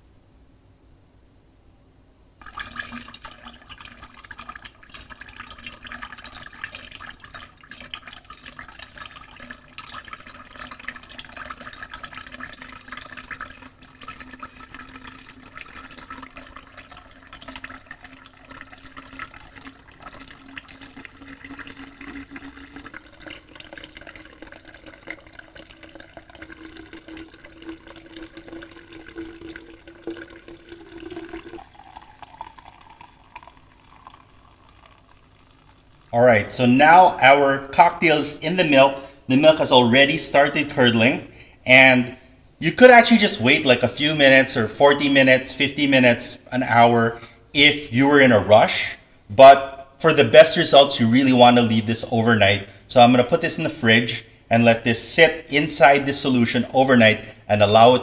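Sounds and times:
liquid trickling into glass: 2.4s - 58.0s.

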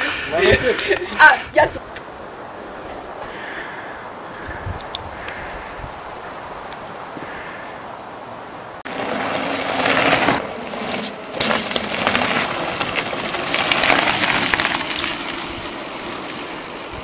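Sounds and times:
bike tyres crunching on gravel: 8.6s - 17.0s.

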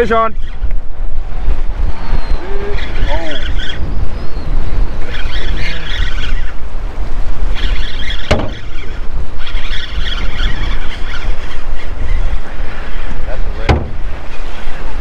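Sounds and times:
wind buffeting microphone: 0.0s - 15.0s
fishing reel whirring: 1.9s - 13.1s
sharp knock: 8.3s - 8.6s, 13.6s - 14.0s.

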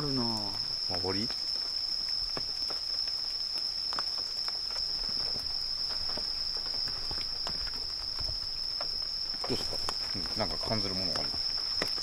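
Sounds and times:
chorus of night insects: 0.0s - 12.0s.

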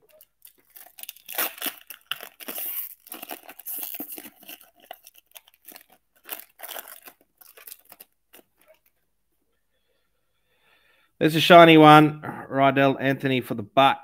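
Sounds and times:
foil wrapper tearing and crinkling: 0.0s - 8.9s.

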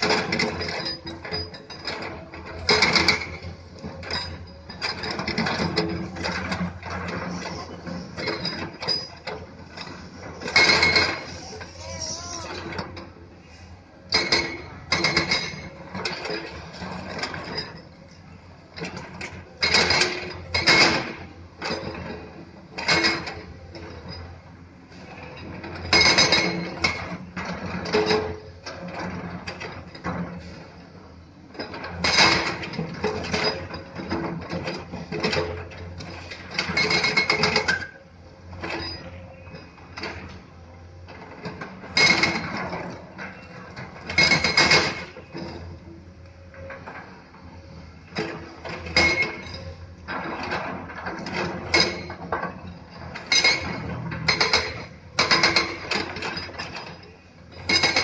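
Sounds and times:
diesel engines droning: 4.6s - 14.1s.

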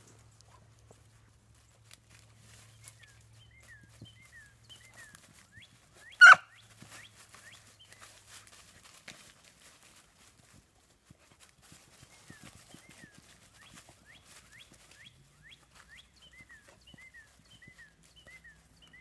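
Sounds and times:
small birds chirping: 1.0s - 8.5s, 11.6s - 19.0s
dog rustling through dry leaves: 1.2s - 15.0s
dog barking: 6.2s - 6.5s.

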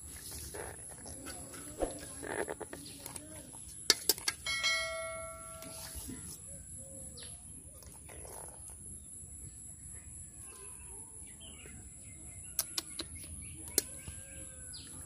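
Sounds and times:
birds chirping: 5.0s - 15.0s.

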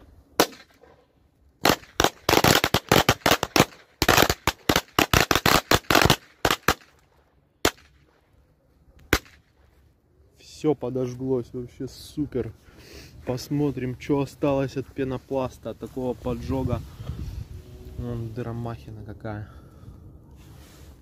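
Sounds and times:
firecrackers banging: 1.6s - 7.0s.

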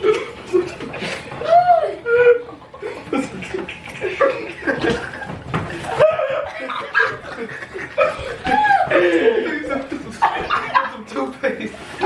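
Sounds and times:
men laughing: 0.0s - 12.0s.

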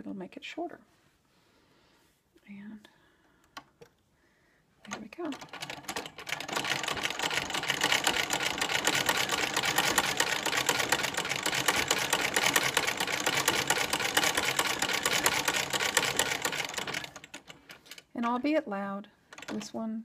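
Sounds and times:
sewing machine clatter: 4.8s - 18.4s, 19.3s - 19.8s.

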